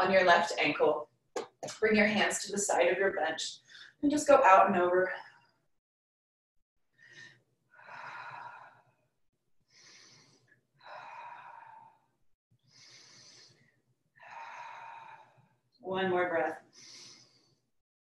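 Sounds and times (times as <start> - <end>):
woman breathing deeply: 7.0 - 9.0, 9.7 - 15.6, 16.6 - 17.7.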